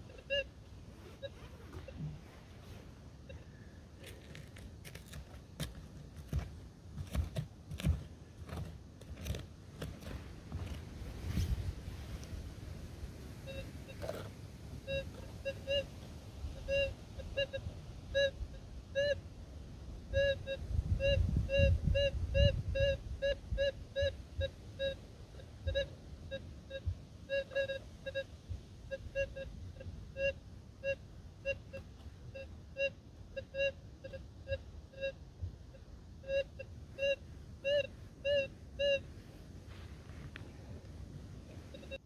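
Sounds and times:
metal detector short beeps: 28.9s - 35.2s.

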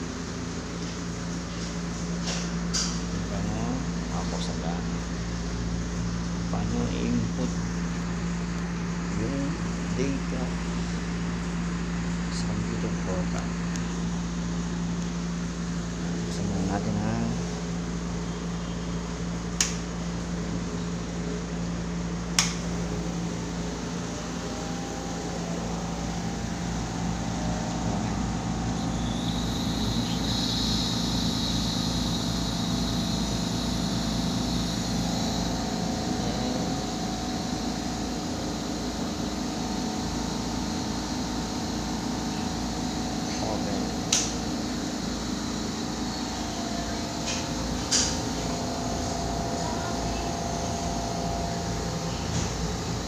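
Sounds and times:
air compressor humming: 0.0s - 53.0s
switch clicks: 19.6s - 19.8s, 22.4s - 22.6s, 44.1s - 44.4s
high-pitched hiss: 24.6s - 53.0s.

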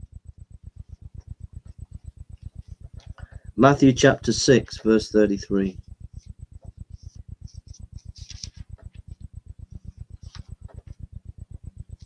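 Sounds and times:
low pulsing electrical hum: 0.0s - 12.0s
book pages rustling: 7.0s - 9.0s, 10.2s - 11.0s.

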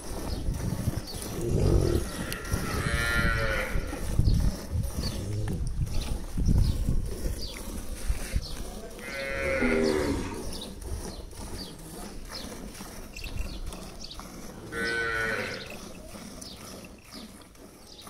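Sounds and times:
cow mooing: 1.4s - 4.0s, 9.0s - 10.6s, 14.6s - 15.8s.

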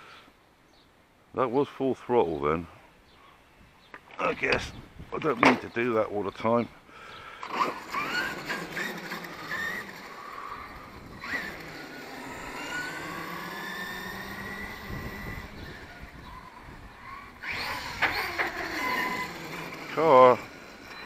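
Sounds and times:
electric toy car motor whine: 7.4s - 21.0s.

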